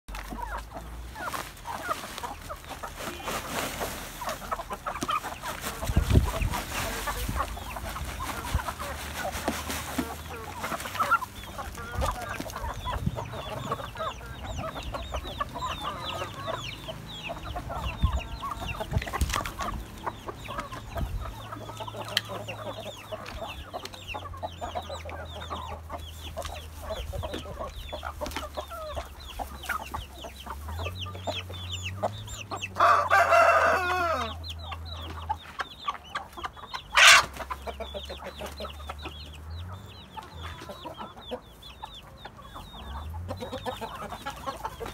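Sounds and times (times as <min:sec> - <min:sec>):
chickens clucking: 0:00.1 - 0:44.9
rooster crowing: 0:32.8 - 0:34.4.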